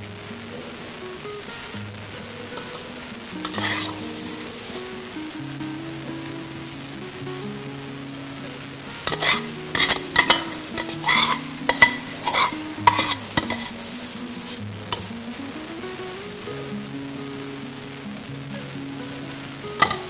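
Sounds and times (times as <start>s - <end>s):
soft background music: 0.0s - 20.0s
metal skimmer scraping a pot: 3.5s - 4.8s, 9.1s - 15.1s, 19.8s - 20.0s.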